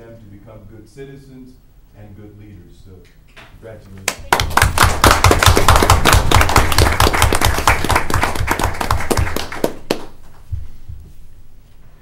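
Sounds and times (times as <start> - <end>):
audience applauding: 4.1 - 10.3.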